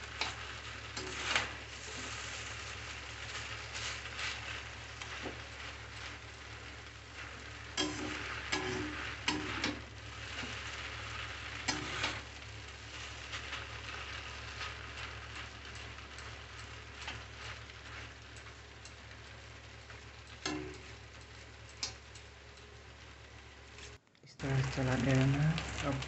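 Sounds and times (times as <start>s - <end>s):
noodles sizzling in hot oil: 0.0s - 26.0s
metal spatula clanking on pan: 7.8s - 9.8s, 20.4s - 20.8s.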